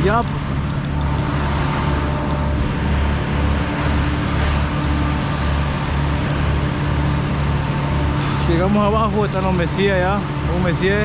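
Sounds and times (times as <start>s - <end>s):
engine hum with low throb: 0.0s - 11.0s.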